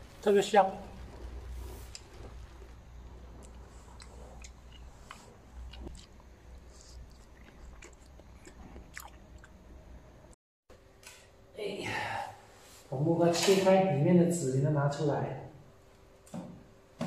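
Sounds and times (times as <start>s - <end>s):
person chewing soft fruit: 1.0s - 10.1s.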